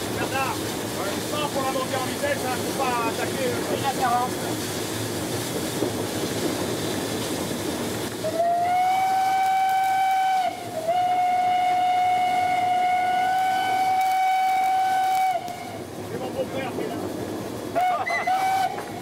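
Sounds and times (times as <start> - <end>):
locomotive running noise: 0.0 - 19.0
steam locomotive whistle: 8.2 - 15.9, 17.7 - 19.0.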